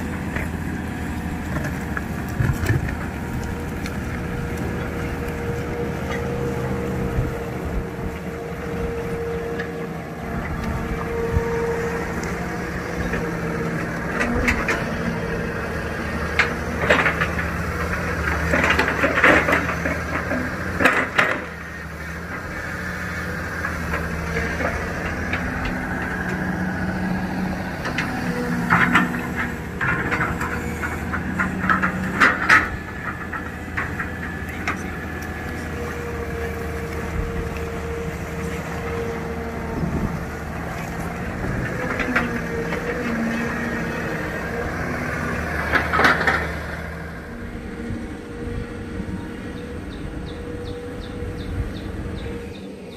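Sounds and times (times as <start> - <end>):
excavator diesel engine running: 0.0 - 52.9
clanks and scrapes: 27.8 - 35.0.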